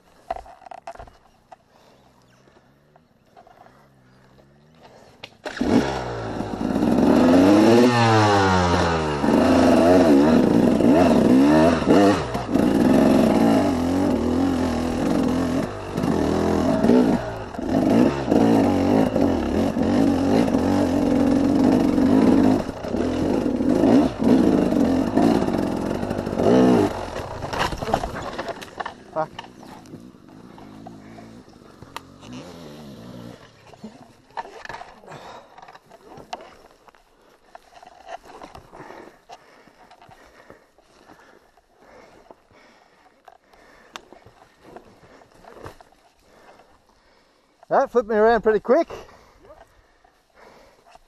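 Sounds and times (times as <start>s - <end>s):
dirt bike engine revving: 5.4s - 35.5s.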